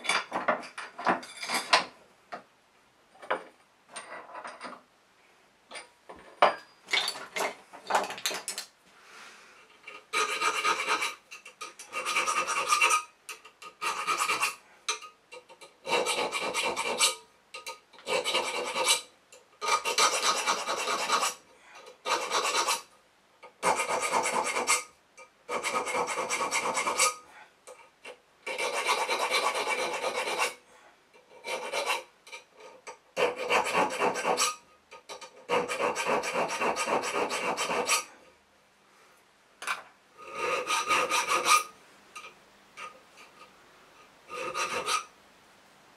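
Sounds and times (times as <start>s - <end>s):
file rasping on steel blade: 9.8s - 24.9s, 25.5s - 27.2s, 27.8s - 30.6s, 31.2s - 38.2s, 40.2s - 41.7s, 44.3s - 45.1s.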